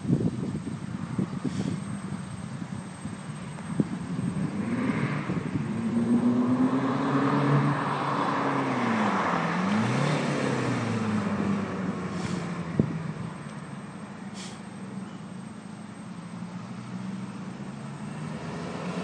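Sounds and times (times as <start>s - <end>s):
car accelerating past: 4.2s - 13.4s, 16.4s - 19.0s.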